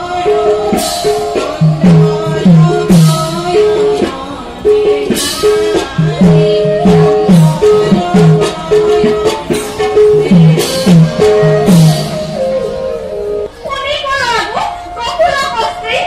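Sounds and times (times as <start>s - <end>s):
held melody note: 4.8s - 13.7s.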